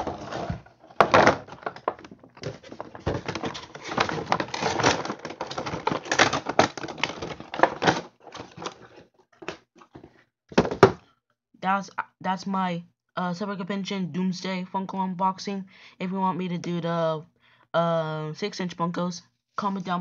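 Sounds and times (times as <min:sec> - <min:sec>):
plastic packaging crinkling: 0:00.0 - 0:10.1.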